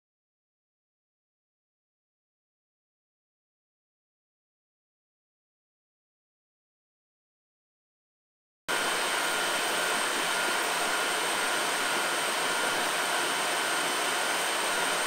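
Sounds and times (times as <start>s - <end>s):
steady whirring hiss: 8.7s - 15.0s.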